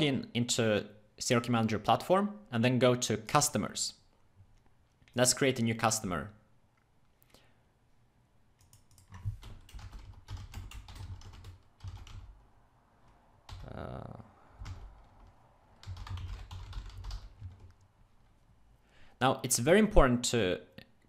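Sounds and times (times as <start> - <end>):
typing on computer keyboard: 8.6 - 12.3, 14.6 - 17.8.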